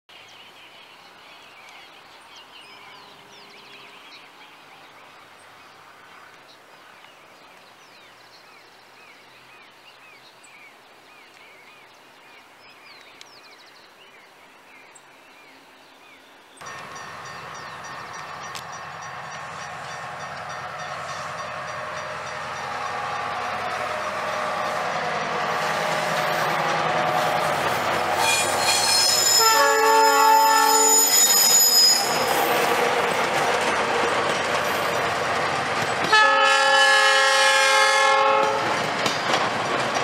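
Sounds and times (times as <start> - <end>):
outdoor background noise: 0.1 - 40.0
locomotive horn: 18.5 - 32.6, 36.0 - 38.8.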